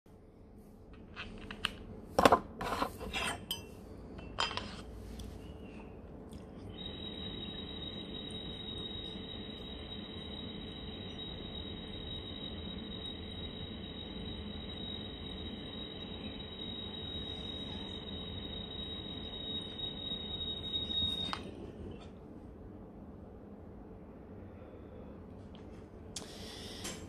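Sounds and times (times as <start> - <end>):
glass clinking: 3.4 - 4.6
vaporizer high whistle: 6.7 - 21.6.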